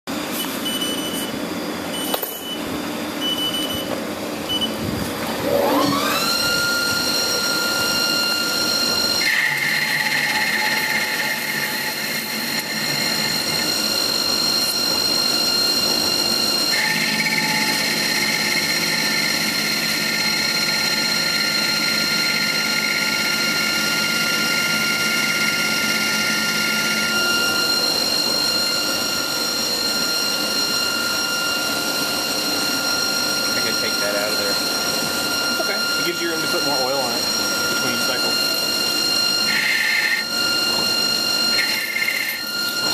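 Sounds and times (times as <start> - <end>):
lathe spindle whine: 0.1 - 42.9
cutting tool hiss: 41.5 - 42.5.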